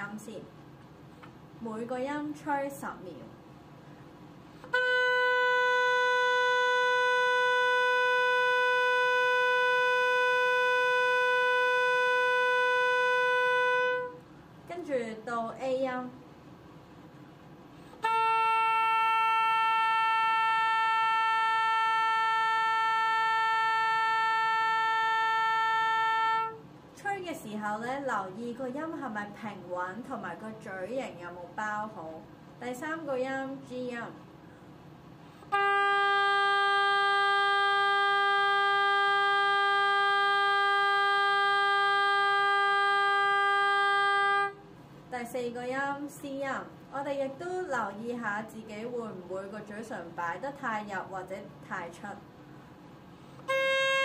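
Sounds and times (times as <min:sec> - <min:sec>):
oboe long steady tone: 0:04.6 - 0:14.3, 0:17.9 - 0:26.7, 0:35.4 - 0:44.7, 0:53.4 - 0:54.0.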